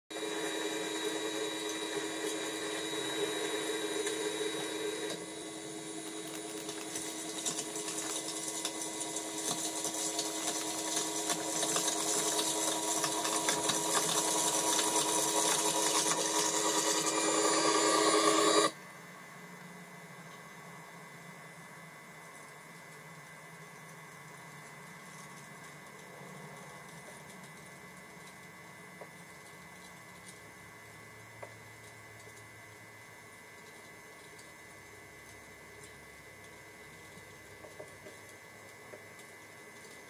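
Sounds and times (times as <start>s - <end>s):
model train motor whine: 0.1s - 18.8s.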